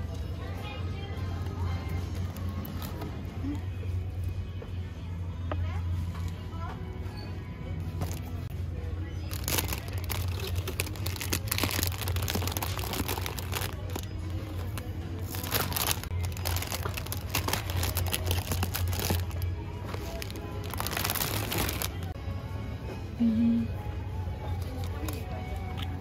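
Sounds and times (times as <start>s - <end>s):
background music: 0.0s - 26.0s
packaging crinkling: 9.3s - 22.1s.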